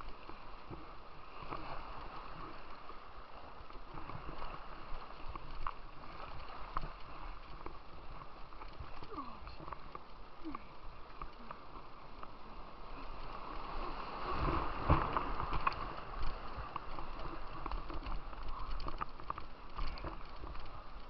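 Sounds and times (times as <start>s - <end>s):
rushing white water: 0.0s - 21.0s
knocks and splashes against boat: 13.6s - 21.0s.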